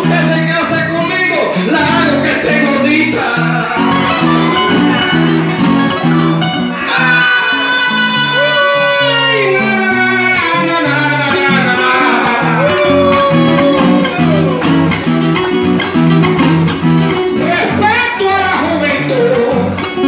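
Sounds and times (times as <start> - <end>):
man singing into a microphone: 0.0 - 4.6, 6.8 - 14.7, 17.4 - 20.0
latin dance music: 0.0 - 20.0.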